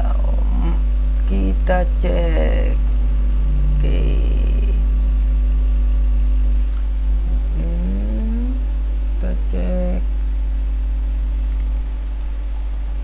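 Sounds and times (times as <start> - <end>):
low electrical hum: 0.0 - 13.0
short rising tone: 2.8 - 6.6.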